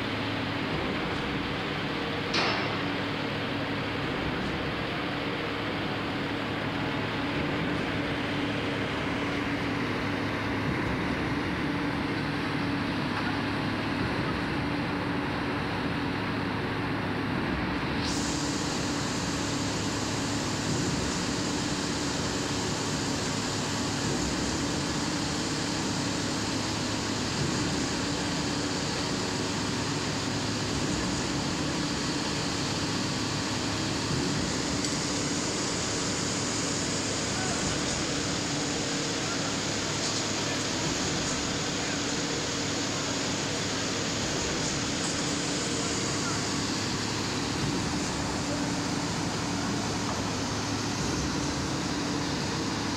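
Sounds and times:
construction machinery drone: 0.0s - 52.9s.

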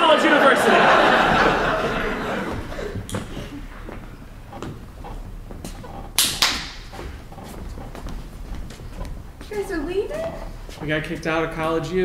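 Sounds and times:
audience laughter: 0.0s - 3.7s
footsteps on stage: 0.8s - 12.0s.

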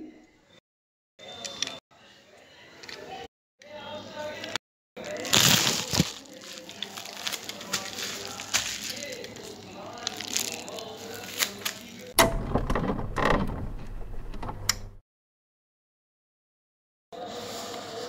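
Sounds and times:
cardboard packaging handled: 5.0s - 12.1s.

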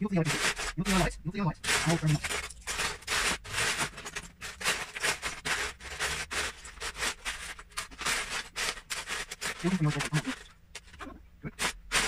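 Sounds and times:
plastic bricks clattering: 0.2s - 11.0s, 11.6s - 12.0s.

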